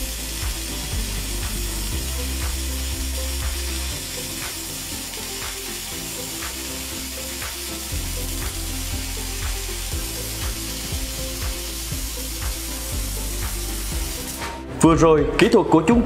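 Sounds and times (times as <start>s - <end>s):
welding arc crackle: 0.0s - 14.6s
background music with beat: 0.0s - 16.0s.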